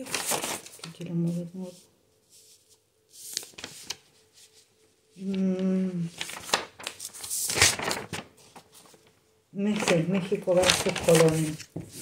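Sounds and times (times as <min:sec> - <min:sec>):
paper rustling: 0:00.0 - 0:12.0
woman humming: 0:05.2 - 0:06.2.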